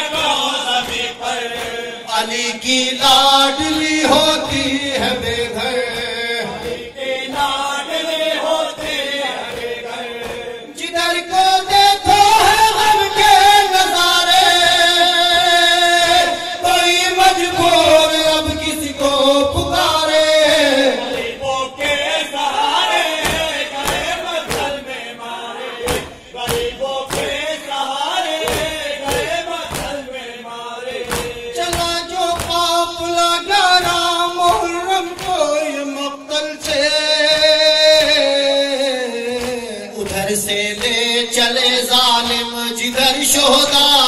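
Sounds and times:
men chanting in unison: 0.0s - 44.0s
hands beating chests: 8.7s - 10.6s, 21.1s - 25.0s, 25.8s - 30.2s, 30.9s - 35.6s, 39.3s - 41.3s.

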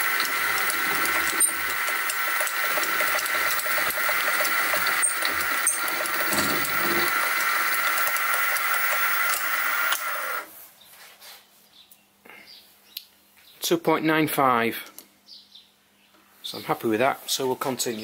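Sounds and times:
end mill cutting metal: 0.0s - 10.5s
milling machine spindle whine: 0.0s - 10.5s.

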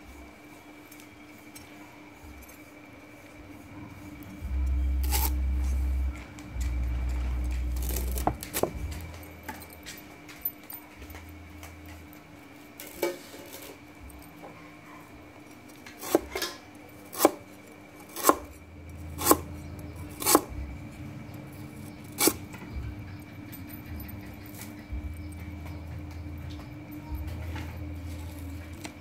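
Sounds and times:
cleaver chopping on wooden board: 5.0s - 5.3s, 16.0s - 16.4s, 17.1s - 17.4s, 18.2s - 18.5s, 19.2s - 19.5s, 20.2s - 20.5s.

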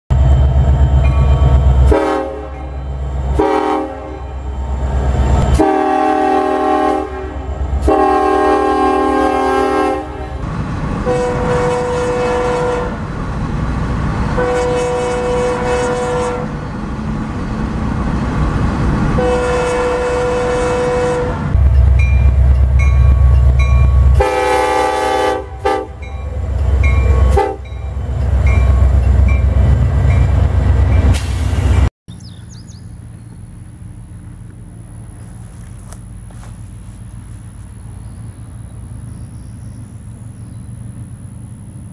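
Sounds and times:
locomotives rumbling past: 0.1s - 41.9s
locomotive air horn blasts: 1.8s - 4.6s, 5.4s - 13.1s, 14.3s - 16.6s, 19.1s - 21.7s, 24.0s - 28.0s.

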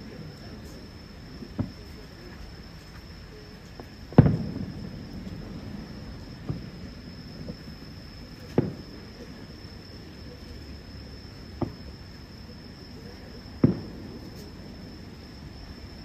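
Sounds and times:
distant fireworks bangs: 1.4s - 2.9s, 3.7s - 9.7s, 11.3s - 12.4s, 13.0s - 15.8s.

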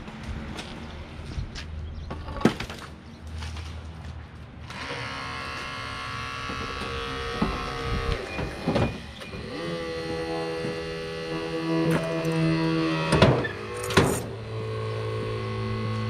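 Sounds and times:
hydraulic pump motor whine: 4.7s - 16.0s.

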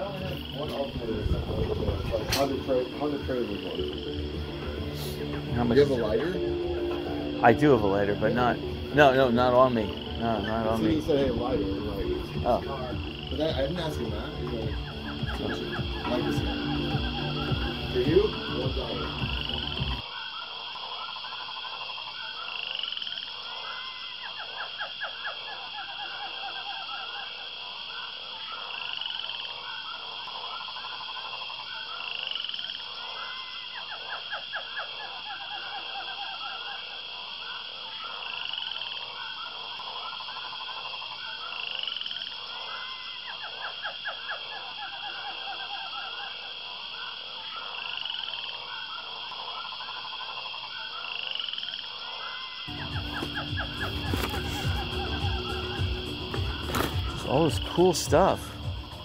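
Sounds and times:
looping electronic music: 0.0s - 20.0s, 52.7s - 59.0s.

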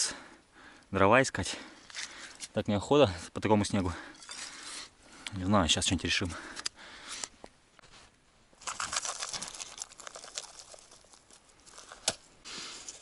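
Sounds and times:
groundbait pattering onto snow: 8.6s - 13.0s.

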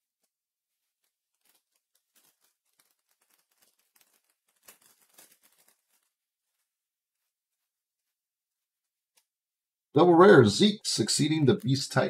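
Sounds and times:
trading cards rustling and clicking: 0.0s - 7.3s, 10.6s - 12.0s.

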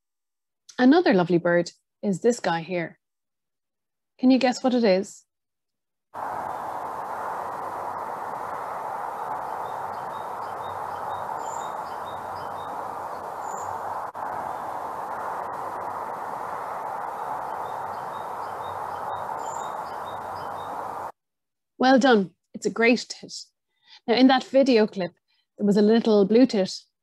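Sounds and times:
background hiss: 6.2s - 21.1s
bird singing two-note song: 9.6s - 13.8s.

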